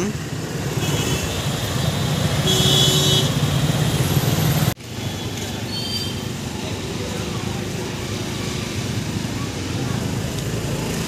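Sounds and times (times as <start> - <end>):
street noise: 0.0 - 11.0
traffic engines rumbling: 0.0 - 11.0
car horn: 2.4 - 3.5.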